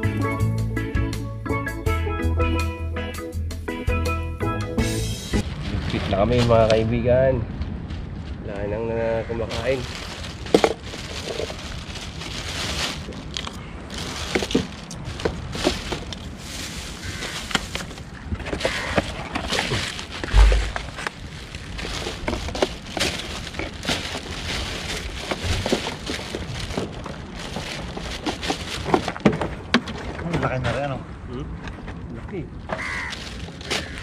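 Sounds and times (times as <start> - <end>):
plastic bags rustling: 5.4 - 7.1, 7.8 - 30.1, 32.7 - 34.0
low steady rumble: 5.4 - 18.4, 19.2 - 28.8
dull thump: 20.2 - 21.0.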